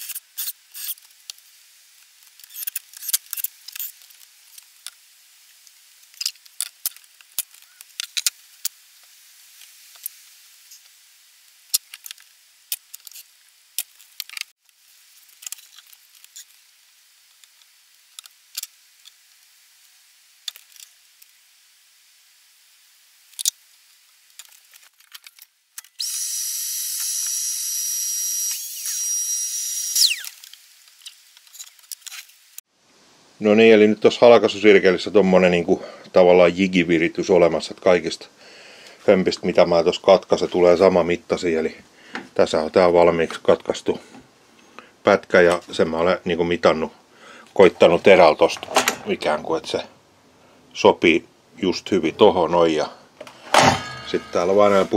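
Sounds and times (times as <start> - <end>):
cordless drill whining: 26.0 - 30.4.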